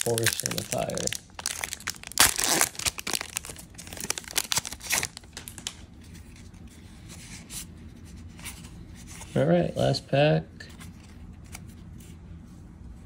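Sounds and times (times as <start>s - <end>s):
wrapper crinkling and rustling: 0.0s - 5.8s
wrapper ripping: 0.0s - 5.8s
cards rustling: 0.0s - 7.5s.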